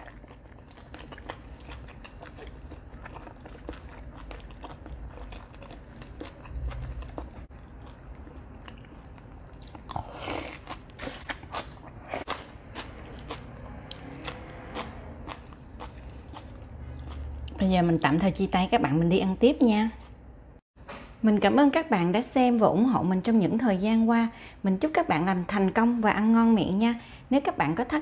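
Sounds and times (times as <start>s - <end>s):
person chewing meat: 0.0s - 17.6s.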